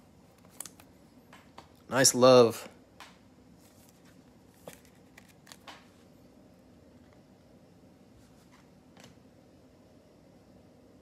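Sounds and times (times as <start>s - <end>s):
cards clicking and tapping: 4.6s - 6.0s.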